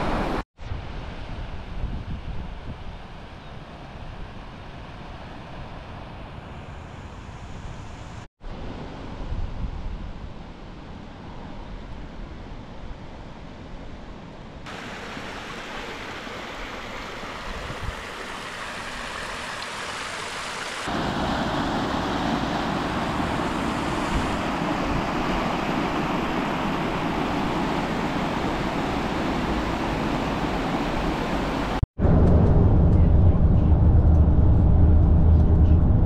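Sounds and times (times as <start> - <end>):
rushing water: 14.7 - 31.9.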